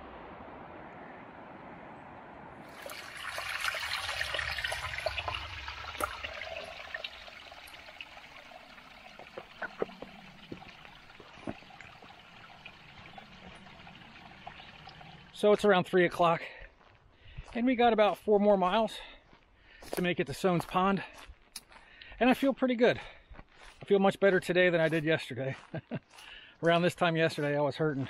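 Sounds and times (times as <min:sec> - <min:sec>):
spring water trickling over rocks: 0:02.6 - 0:16.4
small water drips: 0:02.7 - 0:15.9.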